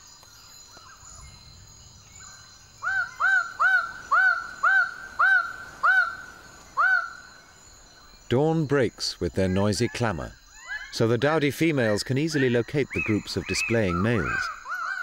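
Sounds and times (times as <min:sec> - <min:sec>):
high insect drone: 0:00.0 - 0:15.0.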